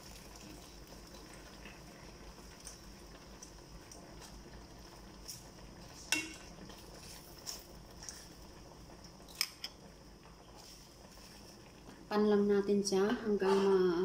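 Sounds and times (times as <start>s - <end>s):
metal ladle clinking on pot: 6.1s - 6.5s.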